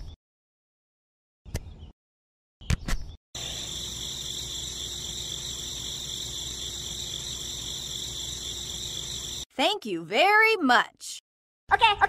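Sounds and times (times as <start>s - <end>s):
crickets chirring: 3.4s - 9.5s.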